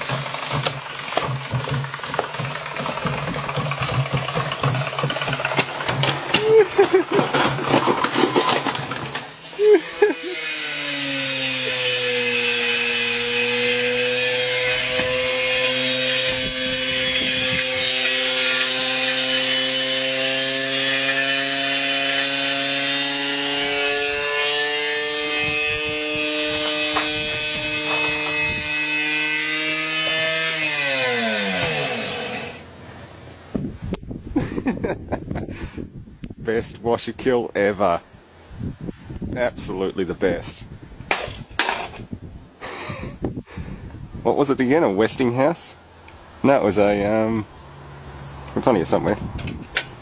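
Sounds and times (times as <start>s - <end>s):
electric motor whining hum: 8.7s - 32.7s
wind gusts on microphone: 25.4s - 28.8s, 33.5s - 37.0s, 38.5s - 44.5s, 48.8s - 50.0s.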